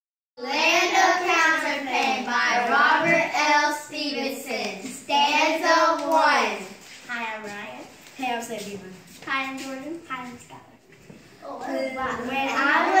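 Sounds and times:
children chanting: 0.4 - 6.8, 11.4 - 13.0.

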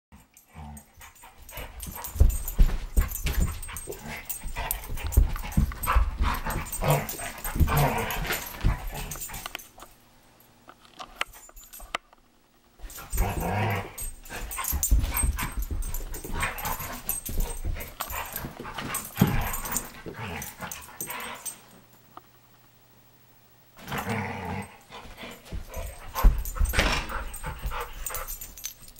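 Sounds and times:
ball and paws thumping on floor: 1.4 - 9.6, 14.1 - 20.8, 25.0 - 28.9
dog growling and whining: 12.9 - 14.2, 23.8 - 24.8.

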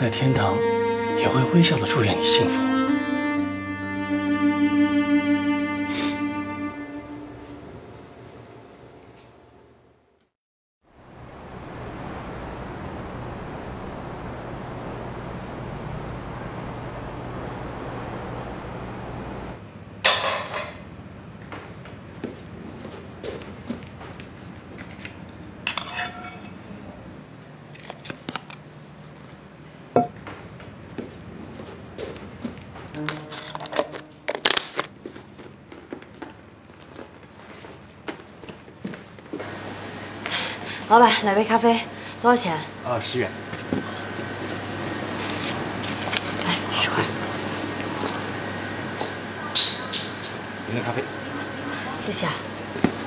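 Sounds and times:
distant road traffic rumble: 10.9 - 20.0, 35.0 - 53.0.

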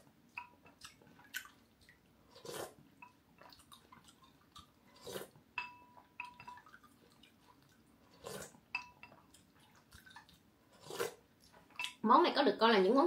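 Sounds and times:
spoon clinking glass bowl: 5.6 - 6.7, 8.7 - 9.2, 11.8 - 12.0.

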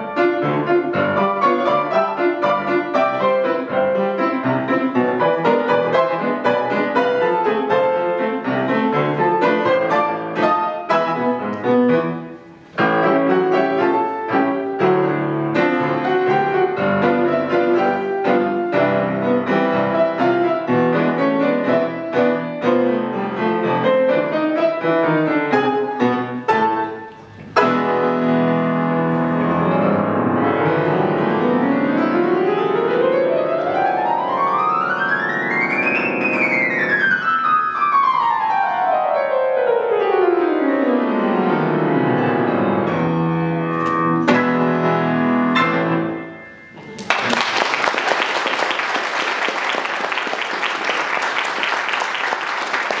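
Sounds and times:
grand piano four-hands: 0.0 - 53.0
audience applause: 46.8 - 53.0.

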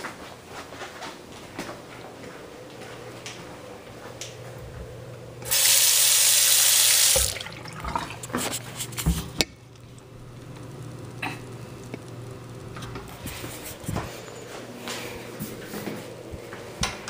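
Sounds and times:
water running into sink: 5.4 - 9.4.

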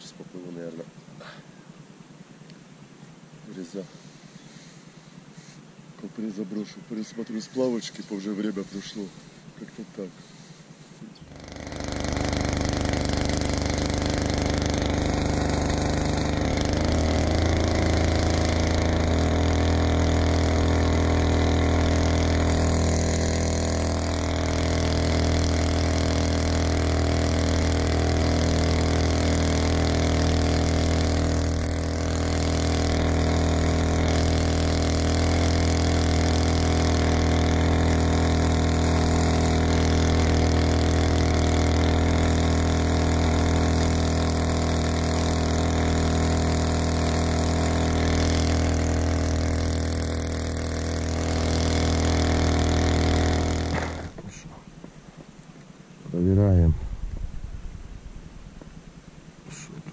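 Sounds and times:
outboard motor running: 2.6 - 59.9.

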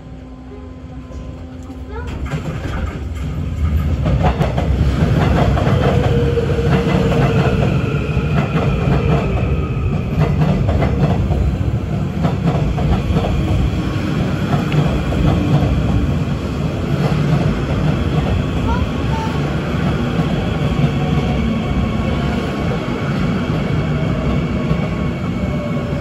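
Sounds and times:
subway train rumbling past: 0.0 - 26.0
wheels clacking over rail joints: 1.9 - 7.6.

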